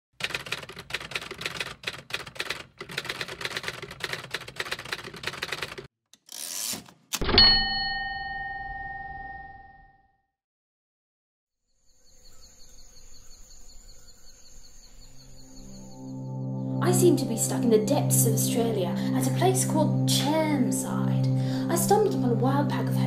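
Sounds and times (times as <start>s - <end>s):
typewriter keys clacking: 0.2s - 5.9s
typewriter carriage sliding rasp: 3.8s - 7.2s
typewriter bell ding: 7.2s - 9.9s.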